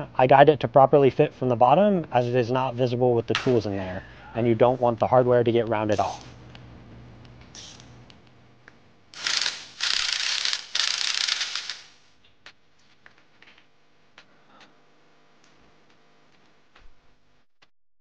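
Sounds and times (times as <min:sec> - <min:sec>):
socket wrench ratcheting: 0:09.2 - 0:12.0.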